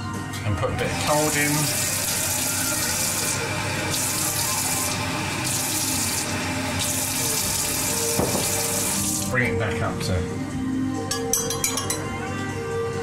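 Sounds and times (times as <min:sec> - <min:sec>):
tap water running into jug: 0:00.8 - 0:09.4.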